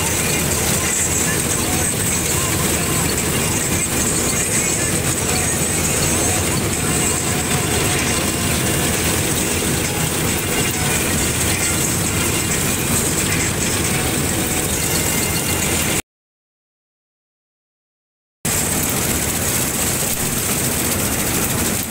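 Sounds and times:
combine harvester running: 0.0 - 16.0, 18.5 - 21.9.

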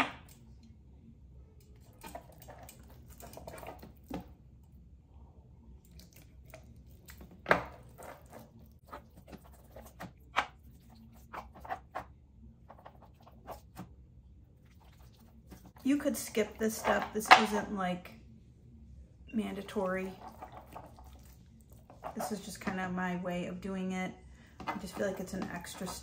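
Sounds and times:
hands squishing marinade into meat: 14.6 - 15.8, 20.1 - 22.4.

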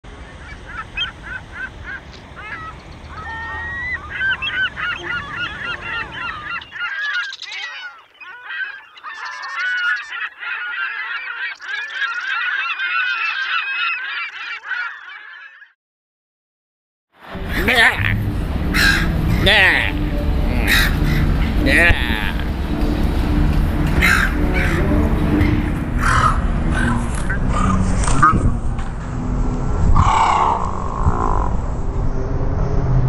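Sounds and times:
gulls squawking: 0.1 - 15.8, 17.4 - 28.6, 29.9 - 31.6
low rumble: 17.2 - 33.0.

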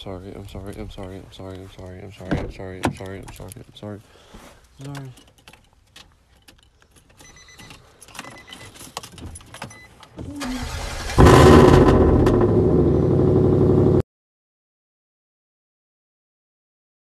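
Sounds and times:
truck engine running loud: 11.2 - 14.0.

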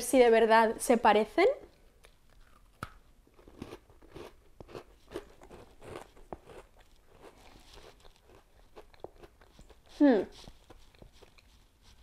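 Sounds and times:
person chewing crunchy cookie: 1.7 - 12.0.

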